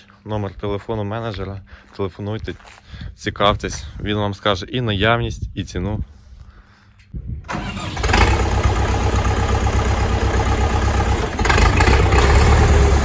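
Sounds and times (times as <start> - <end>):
tractor diesel engine rumbling: 7.4 - 13.0.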